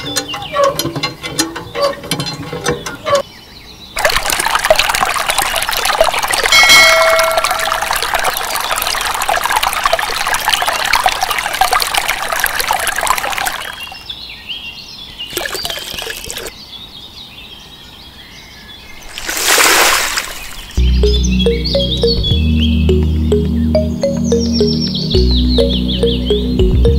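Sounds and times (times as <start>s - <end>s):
water trickling into pool: 4.0s - 14.1s, 15.3s - 16.5s, 19.0s - 20.8s
short ringing tone: 6.6s - 7.6s.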